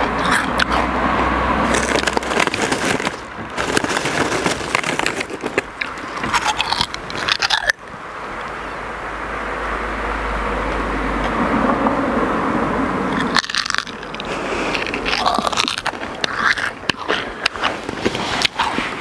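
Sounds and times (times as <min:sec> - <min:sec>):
loud crunching and chewing: 0:00.0 - 0:08.0, 0:13.1 - 0:19.0
steady rumbling noise: 0:00.0 - 0:19.0.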